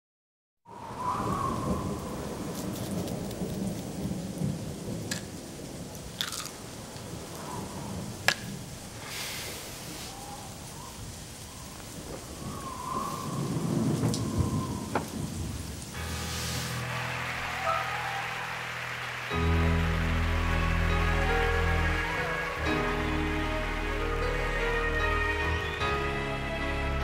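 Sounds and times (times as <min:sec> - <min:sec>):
rolling thunder: 0:00.7 - 0:05.9, 0:10.5 - 0:19.5
steady rain: 0:00.7 - 0:27.0.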